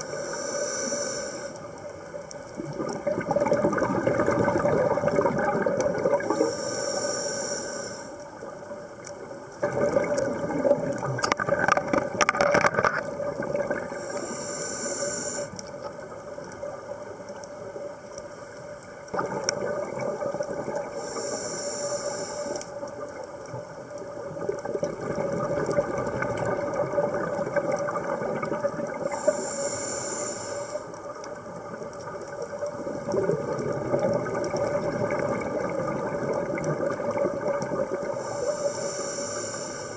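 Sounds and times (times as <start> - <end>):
diver breathing through regulator: 0.0 - 1.8, 6.2 - 8.2, 13.9 - 15.6, 20.9 - 22.8, 29.0 - 31.0, 38.1 - 39.9
bubbling crackle: 0.0 - 39.9
exhaled bubbles underwater: 1.6 - 6.7, 8.3 - 14.3, 18.8 - 21.4, 22.5 - 29.8, 30.8 - 39.0.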